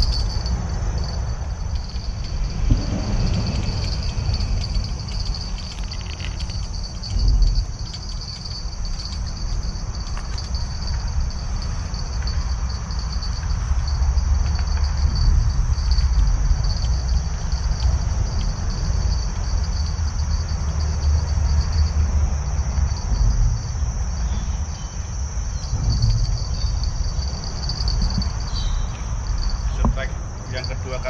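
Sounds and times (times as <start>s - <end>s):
continuous low rumble: 0.0s - 31.0s
insect chirping: 0.0s - 31.0s.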